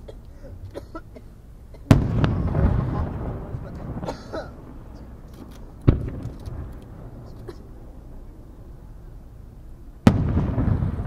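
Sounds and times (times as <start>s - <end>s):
firework bang echoing: 1.9s - 7.9s, 10.0s - 11.0s.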